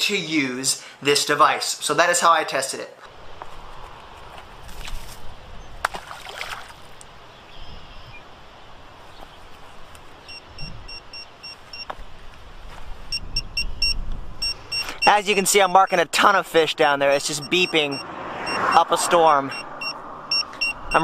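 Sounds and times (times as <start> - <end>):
wind rumble on microphone: 3.1 - 11.2, 12.0 - 14.8
float splashing into water: 5.8 - 7.0
short high beeps: 13.1 - 15.3, 17.4 - 18.9, 19.5 - 21.0.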